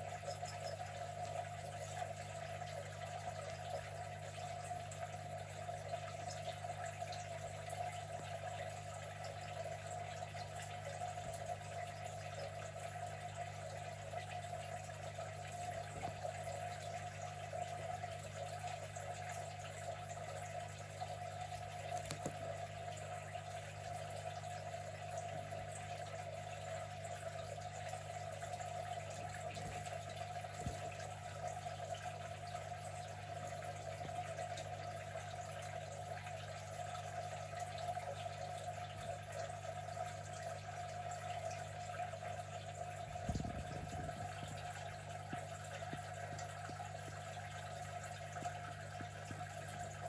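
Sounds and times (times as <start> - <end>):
steady low hum: 21.0 - 50.0.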